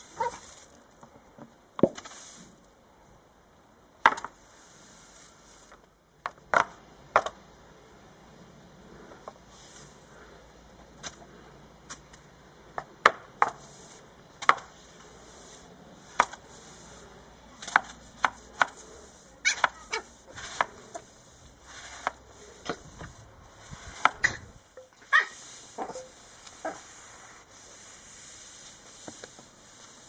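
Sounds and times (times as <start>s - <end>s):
broom bristles swishing: 0.0s - 0.8s, 14.7s - 30.0s
broom scraping on tiled steps: 0.0s - 0.9s, 1.9s - 2.7s, 4.3s - 5.9s, 8.9s - 10.4s, 13.4s - 30.0s.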